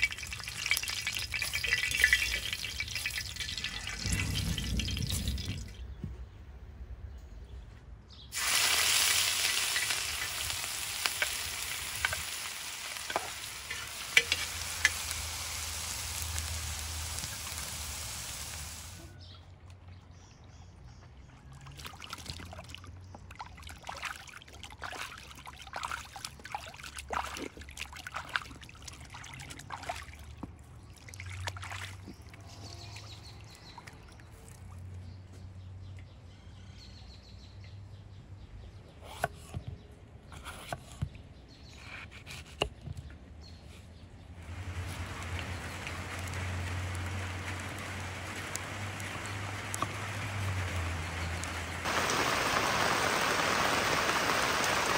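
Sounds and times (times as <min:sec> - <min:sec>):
rain hissing: 0:00.0 - 0:06.0, 0:08.3 - 0:19.1, 0:44.4 - 0:54.9
water splashing and sloshing: 0:00.0 - 0:06.5, 0:08.3 - 0:36.1, 0:44.2 - 0:54.9.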